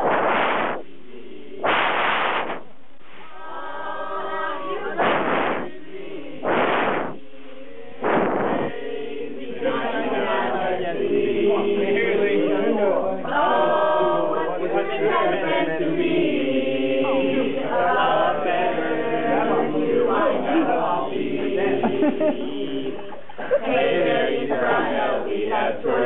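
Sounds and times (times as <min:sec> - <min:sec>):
short loud burst of noise: 0:00.0 - 0:01.0, 0:01.6 - 0:09.1
group of voices singing: 0:00.0 - 0:02.6, 0:03.2 - 0:26.0.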